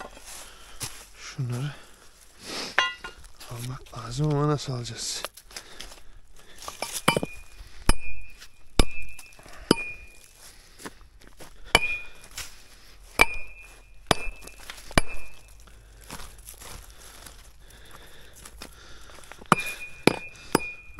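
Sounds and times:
metal tool striking rock: 2.8 - 3.2, 6.7 - 10.2, 11.7 - 12.3, 13.2 - 15.6, 19.5 - 20.9.

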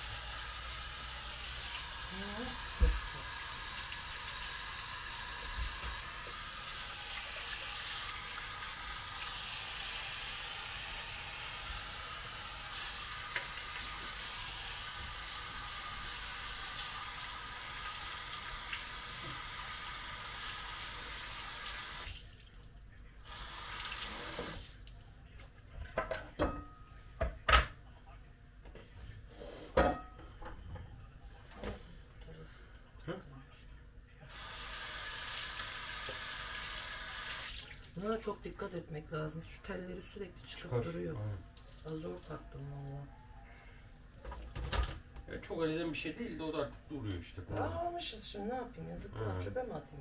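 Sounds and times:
water running from tap into sink: 0.0 - 22.4, 23.3 - 24.8, 34.3 - 38.2.

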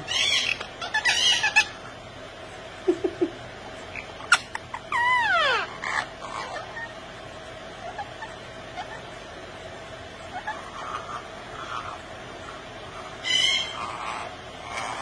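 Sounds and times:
parakeets calling: 0.0 - 15.0.

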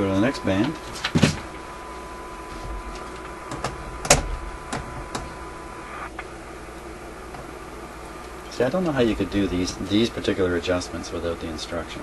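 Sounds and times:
low hum: 0.0 - 12.0
radio switch clicks: 3.0 - 6.3.

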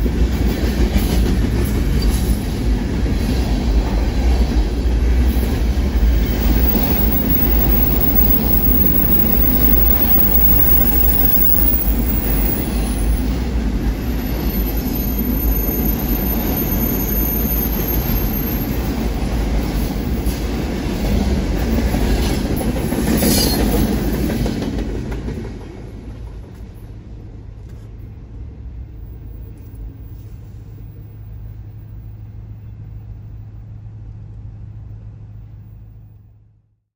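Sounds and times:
freight cars rolling on steel wheels: 5.9 - 19.2
high wheel squeal: 6.1 - 18.9, 23.2 - 23.8.

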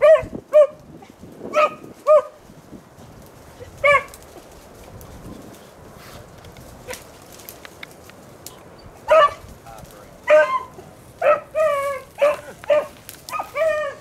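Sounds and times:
hound baying: 0.0 - 0.8, 9.0 - 9.4, 10.2 - 14.0.

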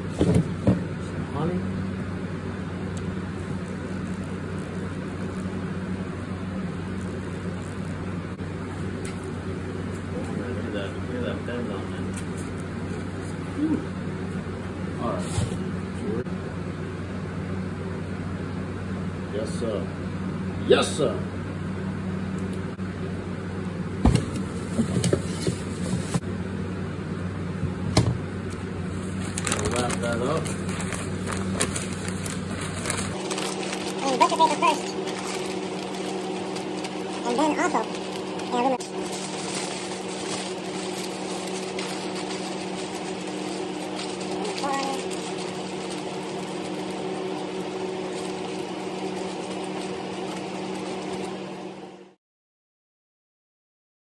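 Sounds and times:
low mechanical hum: 0.0 - 52.2
aluminium foil crinkling: 29.0 - 51.4.

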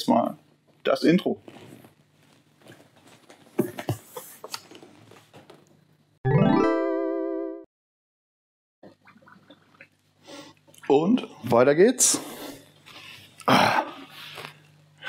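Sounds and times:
faint handling and rustling: 0.7 - 5.7
rising warbling jingle tone: 6.3 - 7.6.

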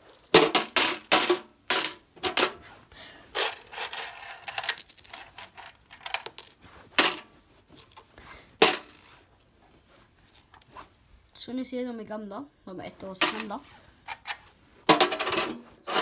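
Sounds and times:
coins clinking in metal box: 0.4 - 2.5, 3.4 - 7.2, 7.8 - 8.0.

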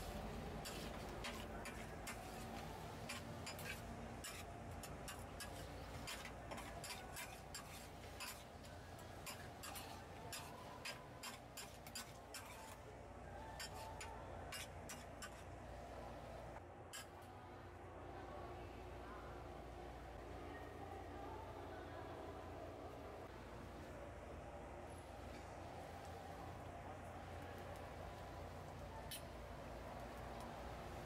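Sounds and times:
metal spatula scraping griddle: 0.0 - 15.6
low steady hum: 0.0 - 31.0.

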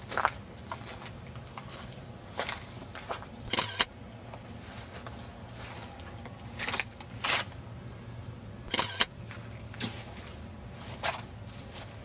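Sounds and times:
low steady hum: 0.0 - 12.0
footsteps on grass and leaves: 0.1 - 3.4, 4.3 - 7.6, 9.2 - 12.0.

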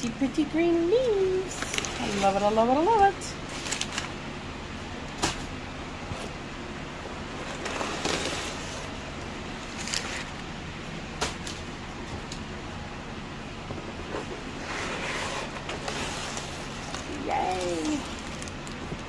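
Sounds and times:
background hum: 0.0 - 19.0
cardboard scraping rustle: 7.4 - 9.0, 9.6 - 10.4, 13.8 - 19.0.

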